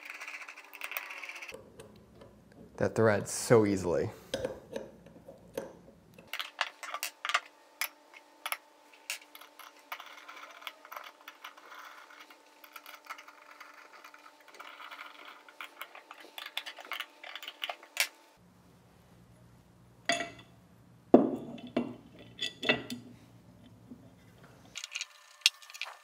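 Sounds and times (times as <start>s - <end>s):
metal bolts clicking and clinking: 20.0s - 20.5s
metal parts handled: 24.7s - 26.0s.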